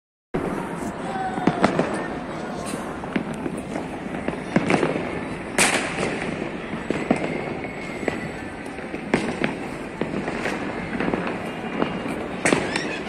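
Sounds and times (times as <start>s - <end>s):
crackle of distant firecrackers: 0.4s - 13.0s
loud sharp firework bangs: 0.4s - 13.0s.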